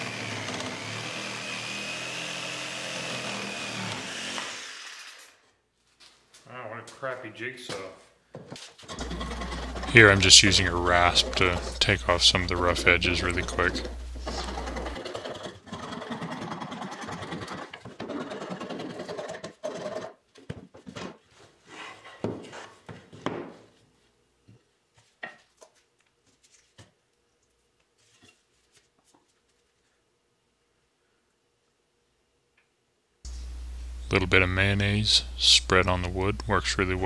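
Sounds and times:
rasp filing wood: 0:08.9 - 0:20.2.

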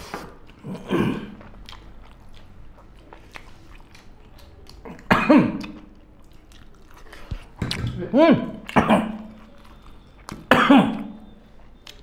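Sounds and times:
faint chewing: 0:00.0 - 0:12.0
person coughing: 0:05.0 - 0:05.6, 0:08.7 - 0:09.3, 0:10.5 - 0:11.2.

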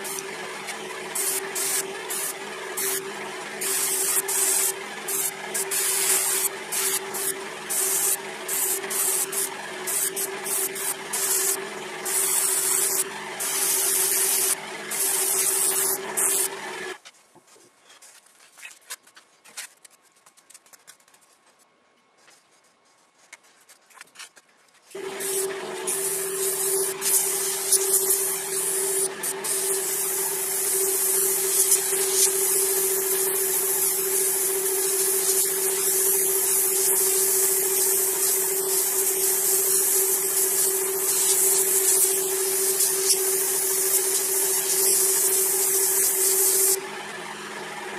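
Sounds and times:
compressor humming: 0:00.0 - 0:17.0, 0:25.0 - 0:47.9
airbrush hissing: 0:01.1 - 0:03.0, 0:03.6 - 0:16.6, 0:25.2 - 0:46.8.

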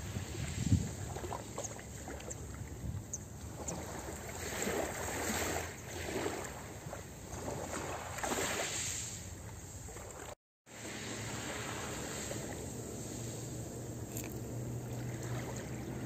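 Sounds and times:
small waves lapping on pebbles: 0:03.4 - 0:16.0.

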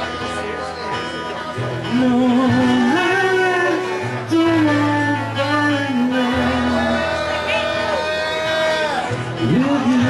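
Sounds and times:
acoustic guitar: 0:00.0 - 0:10.0
man singing a long note: 0:02.0 - 0:10.0.

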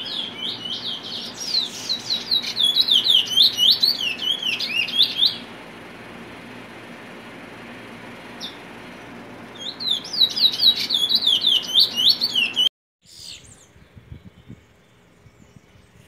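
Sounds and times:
finch singing whistled notes: 0:00.0 - 0:05.5, 0:09.5 - 0:16.0.

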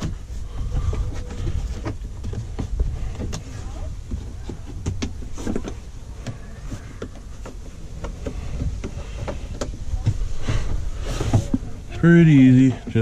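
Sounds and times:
steady low rumble: 0:07.3 - 0:13.0.

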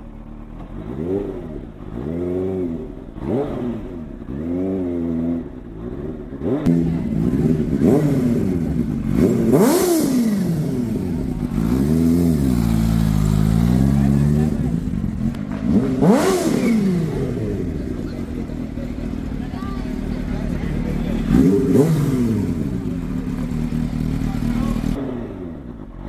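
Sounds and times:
motorcycle engine revving: 0:00.0 - 0:26.0.

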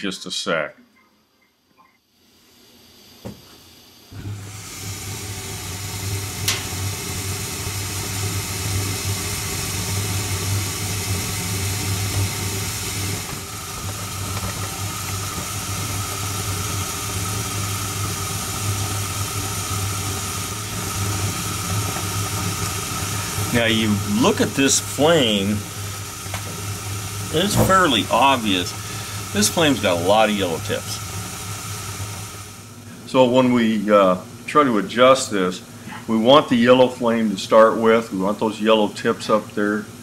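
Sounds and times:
gas flame rushing: 0:02.5 - 0:33.6
burner ignition click: 0:06.4 - 0:06.9, 0:27.3 - 0:28.7.

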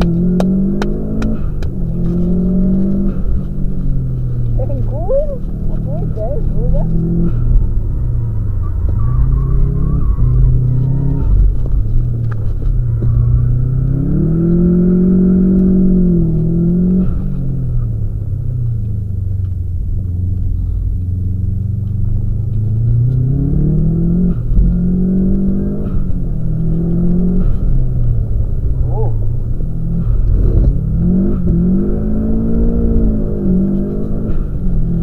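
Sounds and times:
car engine revving: 0:00.0 - 0:35.0
low engine rumble: 0:00.0 - 0:35.0.

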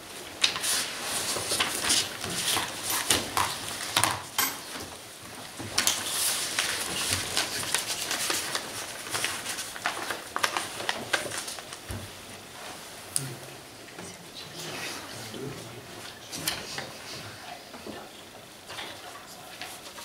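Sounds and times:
papers rustling: 0:00.2 - 0:04.1, 0:04.7 - 0:13.0.

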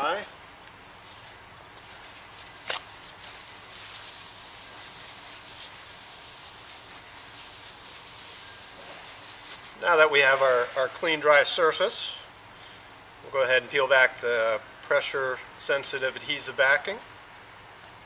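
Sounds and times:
cloth scrubbing concrete floor: 0:01.0 - 0:11.2.

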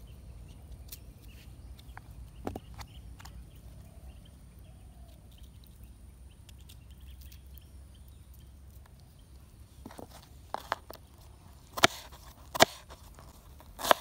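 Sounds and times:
knife peeling onion skin: 0:11.6 - 0:14.0.

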